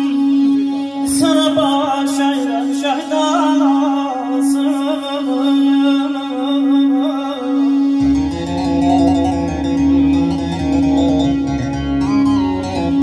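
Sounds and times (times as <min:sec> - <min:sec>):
man singing: 0:00.0 - 0:11.5
accordion: 0:00.0 - 0:13.0
held drone note: 0:07.6 - 0:13.0.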